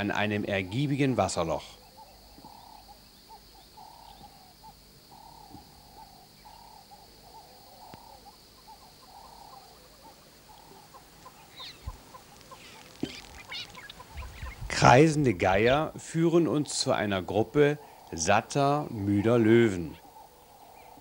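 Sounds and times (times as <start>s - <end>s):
high chirping bird calls: 0.0s - 21.0s
hoot-like animal calls: 1.6s - 14.6s, 19.2s - 21.0s.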